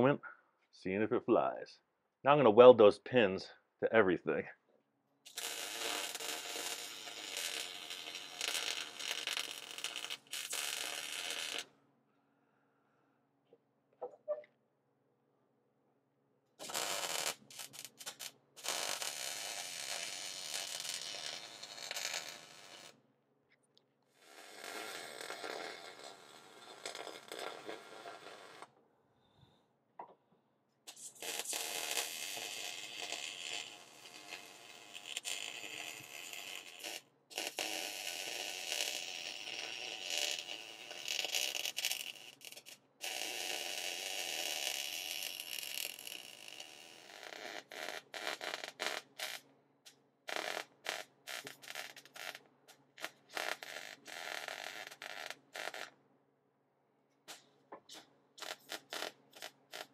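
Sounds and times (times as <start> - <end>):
welder arc crackling hiss: 5.3 - 11.7, 16.6 - 22.9, 30.9 - 46.6, 57.3 - 59.9.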